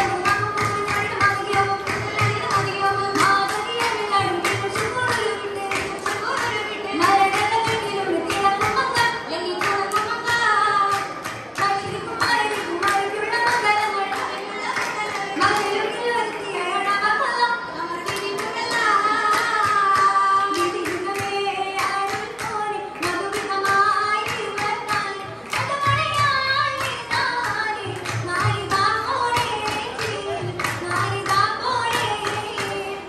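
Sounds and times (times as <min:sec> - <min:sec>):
girls singing together: 0:00.0 - 0:33.0
rhythmic hand clapping: 0:00.0 - 0:33.0.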